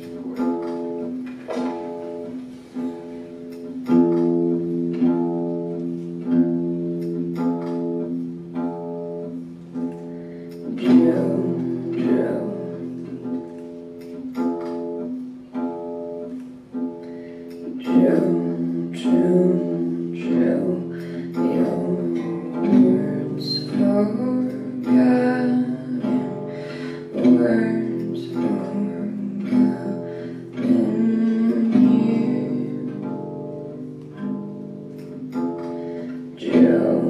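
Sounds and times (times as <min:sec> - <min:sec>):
guitar chords strummed: 0:00.0 - 0:37.0.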